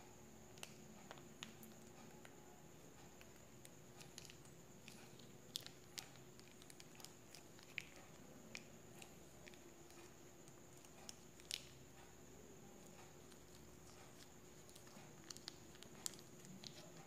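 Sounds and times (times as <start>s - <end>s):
faint steady hum: 0.0s - 17.0s
plastic sachet crinkling: 13.2s - 17.0s.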